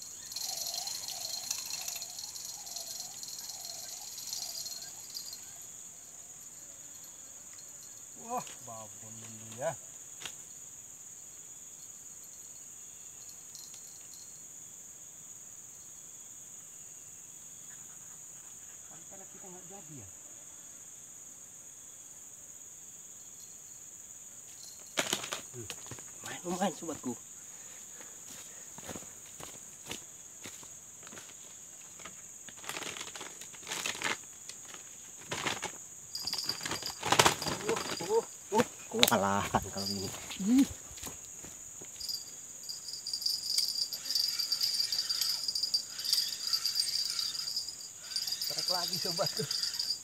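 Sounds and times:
insects chirping: 0.0s - 50.0s
rustling and crinkling: 28.8s - 42.2s.

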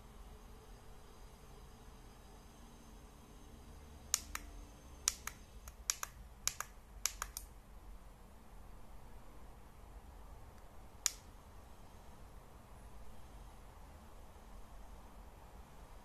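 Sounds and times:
push buttons clicking: 4.2s - 4.5s, 5.1s - 7.5s.

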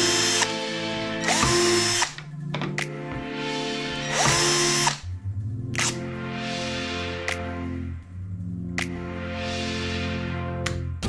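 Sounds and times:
cordless drill drilling into plastic: 1.2s - 2.2s.

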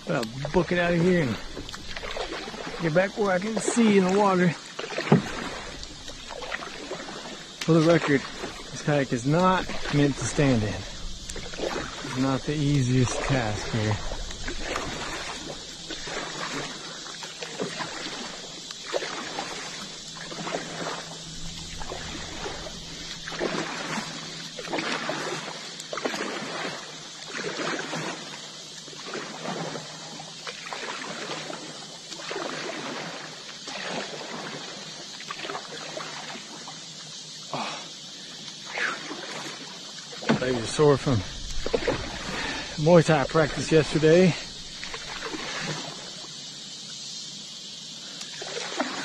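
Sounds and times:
kayak paddle splashing water: 0.0s - 49.0s.

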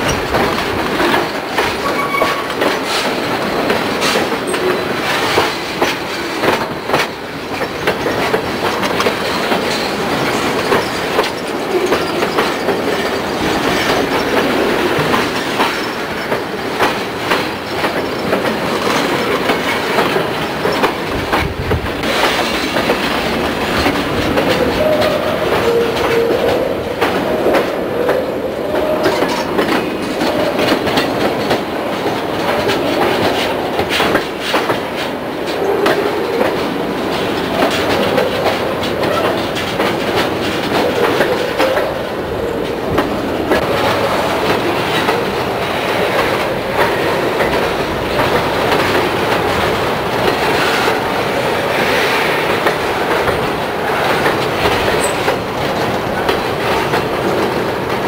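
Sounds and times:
freight cars rumbling on rails: 0.0s - 58.0s
wheels clicking over rail joints: 0.0s - 58.0s
wheel squeal: 1.8s - 2.5s, 55.0s - 55.3s.

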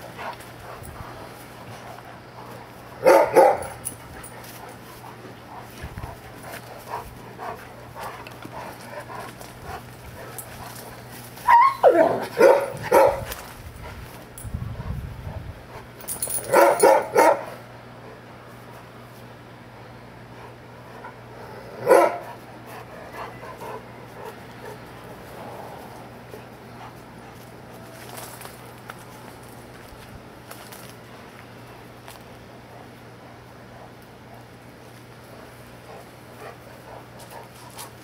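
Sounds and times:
dogs barking in play: 0.0s - 13.5s, 15.8s - 18.7s, 20.6s - 27.8s.

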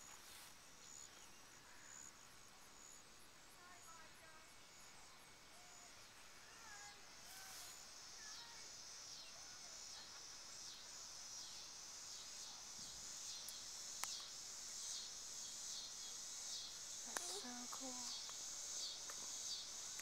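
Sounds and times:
insects buzzing: 0.0s - 20.0s
faint bird chirps: 4.7s - 14.3s.

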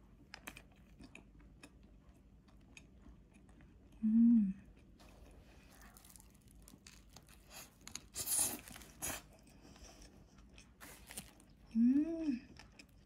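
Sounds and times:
paper wrapping crinkling: 5.1s - 9.2s, 10.8s - 11.5s.

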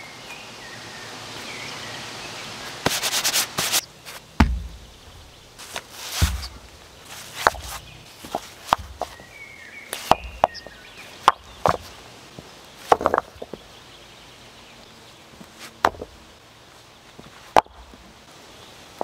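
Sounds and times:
stones knocking together: 4.4s - 9.2s, 10.0s - 11.9s, 12.8s - 13.6s, 15.8s - 16.1s, 17.5s - 18.0s.

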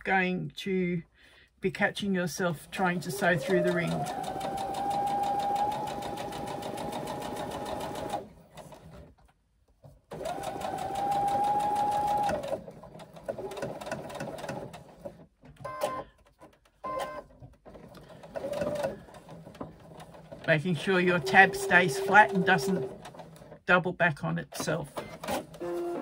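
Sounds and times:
sewing machine stitching: 2.4s - 9.2s, 10.1s - 16.1s, 16.8s - 23.7s.

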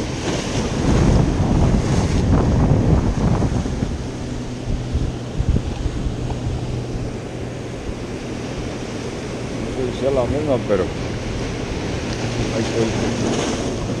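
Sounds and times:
steady low hum: 0.0s - 14.0s
surf breaking on rocks: 0.0s - 14.0s
wind buffeting microphone: 0.0s - 14.0s.

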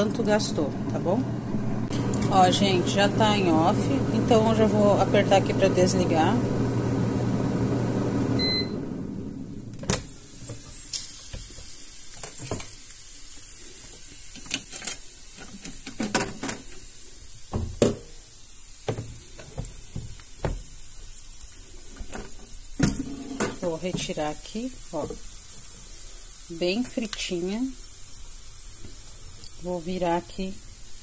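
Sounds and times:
air fryer fan humming: 0.0s - 10.8s
short beep: 8.4s - 8.8s.

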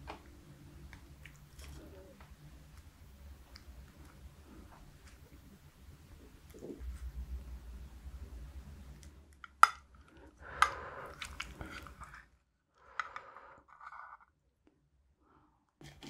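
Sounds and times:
wet squishing of sauce and rice: 0.0s - 7.4s, 8.8s - 12.4s.

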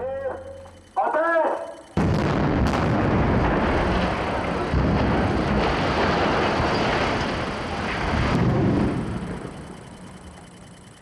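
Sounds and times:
debris crashing: 2.0s - 10.1s.

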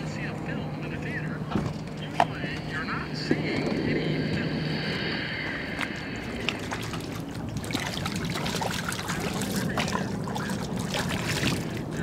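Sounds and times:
water splashing and trickling: 5.8s - 12.0s.

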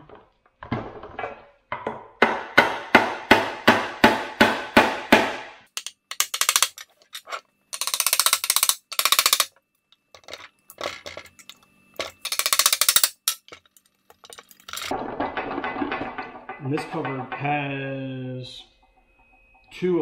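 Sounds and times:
hammer striking metal: 1.8s - 6.7s.

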